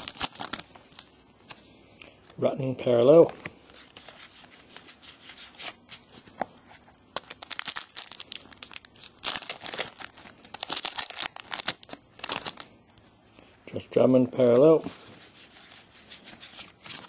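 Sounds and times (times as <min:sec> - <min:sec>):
foil wrapper tearing and crinkling: 0:00.0 - 0:01.1, 0:07.2 - 0:12.7.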